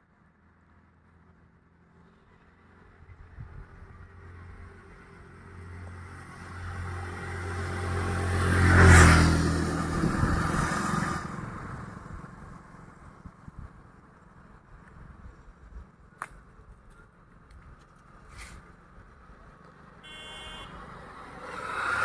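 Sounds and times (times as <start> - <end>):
vehicle driving past: 3.9 - 12.6, 20.4 - 22.0.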